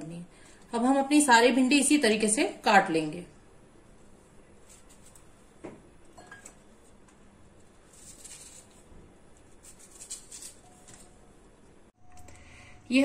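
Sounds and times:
knife slicing okra: 4.6s - 5.3s, 9.4s - 11.0s.

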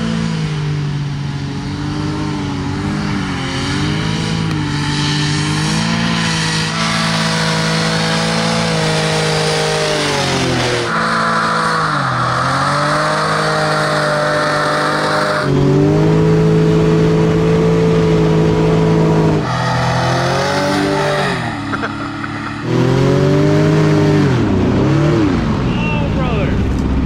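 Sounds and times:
hovercraft engine revving: 0.0s - 27.0s.

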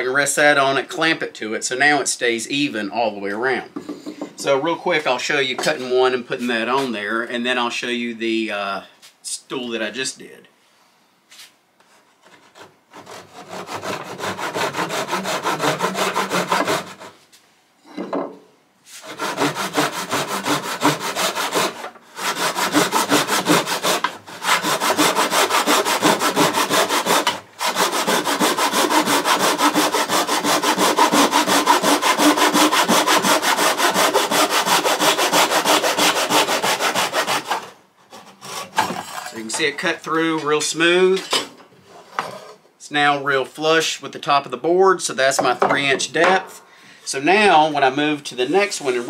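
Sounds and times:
hand saw cutting wood: 12.2s - 17.2s, 19.0s - 39.6s.

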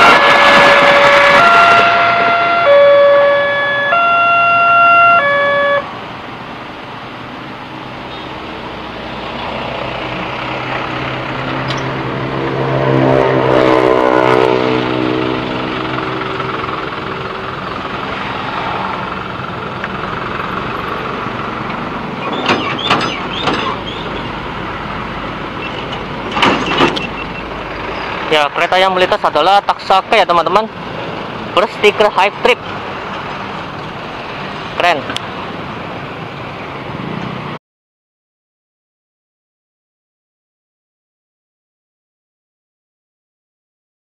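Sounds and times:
heavy vehicle engine passing: 0.0s - 37.6s
road traffic passing: 0.0s - 37.6s
railroad crossing alarm chime: 0.9s - 5.9s.

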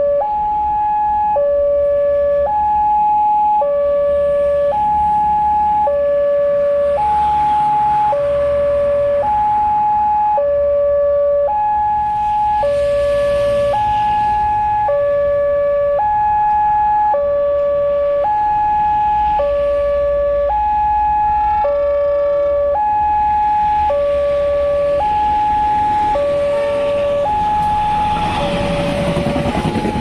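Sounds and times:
level crossing two-tone alarm: 9.0s - 28.4s.

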